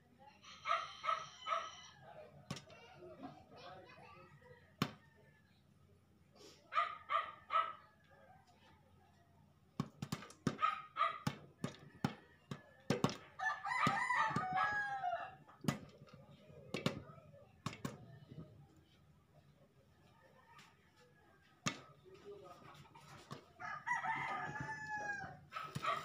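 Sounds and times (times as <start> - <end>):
rooster crowing: 0.5 - 2.1, 13.4 - 15.4, 23.6 - 25.4.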